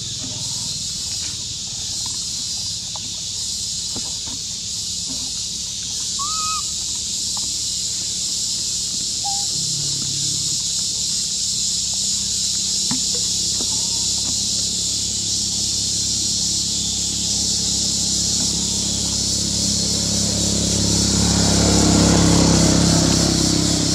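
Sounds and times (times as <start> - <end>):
high-pitched insect drone: 0.0 - 23.9
short high calls: 6.1 - 7.0, 9.2 - 10.6.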